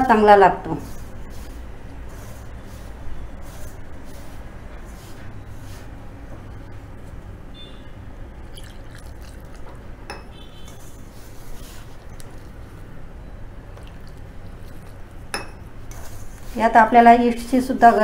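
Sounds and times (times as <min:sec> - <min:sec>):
flour mixed by hand in bowl: 0:00.0 - 0:06.0, 0:10.7 - 0:12.9, 0:15.9 - 0:18.0
water pouring: 0:08.4 - 0:09.7.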